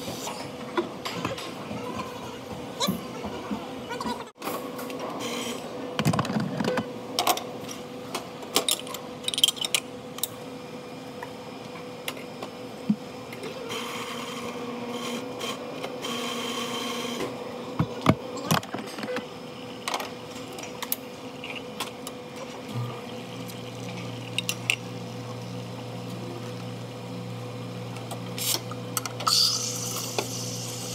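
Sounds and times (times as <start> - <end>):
espresso machine hum: 13.6 - 18.2, 21.1 - 30.9
espresso machine hissing: 29.2 - 30.9.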